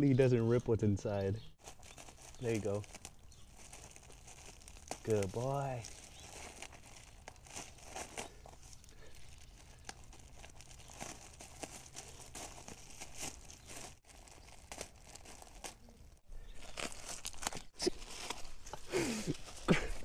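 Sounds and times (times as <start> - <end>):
plastic bag crinkling and tearing: 1.6 - 18.6.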